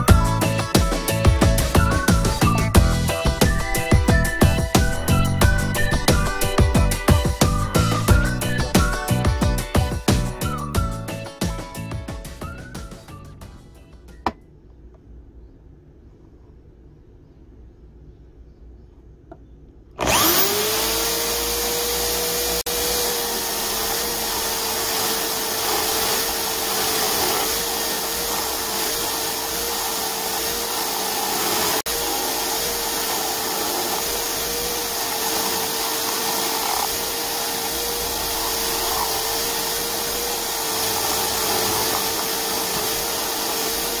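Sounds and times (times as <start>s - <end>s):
chisel cutting spinning wood: 0.0s - 10.9s, 20.0s - 44.0s
electric drill motor whining: 0.0s - 11.1s, 20.0s - 44.0s.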